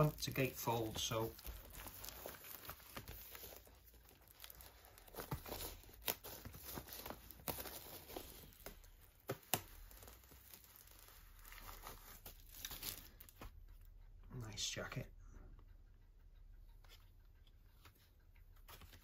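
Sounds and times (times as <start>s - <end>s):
plastic wrap snapping: 0.0s - 13.4s
plastic wrap crinkling and tearing: 0.0s - 13.5s.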